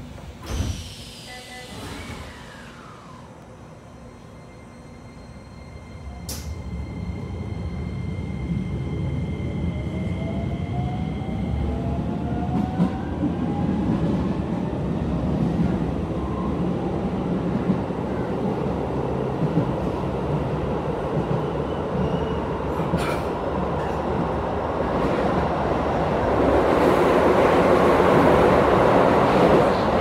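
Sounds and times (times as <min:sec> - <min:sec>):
train wheels rumbling on rail: 0:11.6 - 0:30.0.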